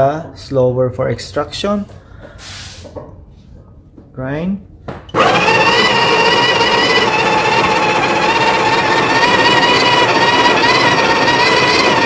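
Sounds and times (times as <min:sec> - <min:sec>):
coffee grinder whining: 0:05.1 - 0:12.0.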